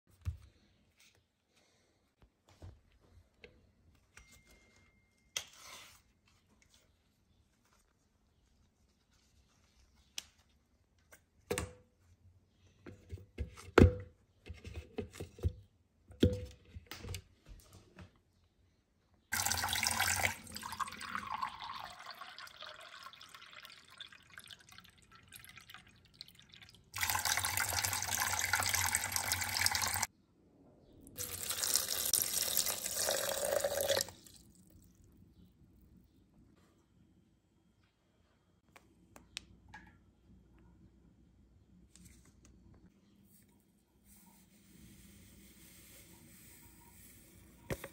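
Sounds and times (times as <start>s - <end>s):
tap water running into a glass: 19.4s - 30.1s, 31.2s - 34.4s.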